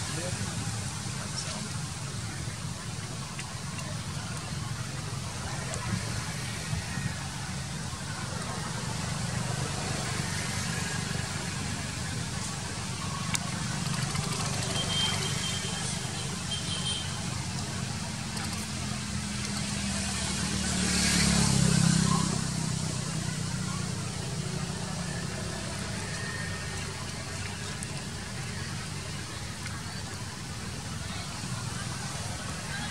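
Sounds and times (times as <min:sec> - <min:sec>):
faint voices: 0:00.0 - 0:32.9.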